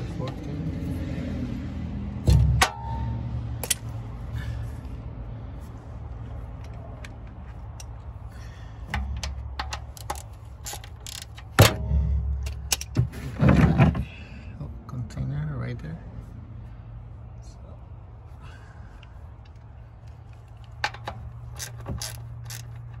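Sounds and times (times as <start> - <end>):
loud thumps: 2.2 - 3.0, 11.4 - 14.0
low rumble: 11.6 - 14.1.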